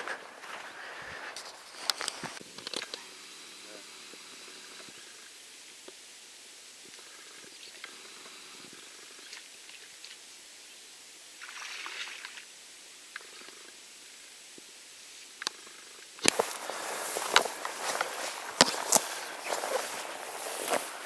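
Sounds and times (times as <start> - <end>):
brief rustle: 0.0 - 3.0, 16.2 - 21.0
faint steady hiss: 0.0 - 21.0.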